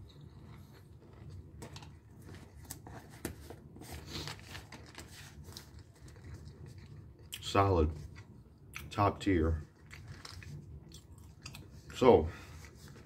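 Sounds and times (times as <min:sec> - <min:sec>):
person chewing peanuts: 0:00.0 - 0:02.6, 0:09.7 - 0:12.0.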